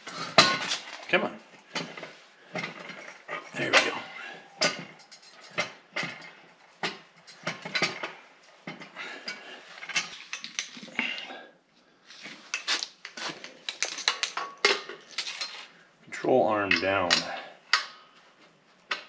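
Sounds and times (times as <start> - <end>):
metal parts clanking: 1.7 - 11.0, 12.1 - 15.7.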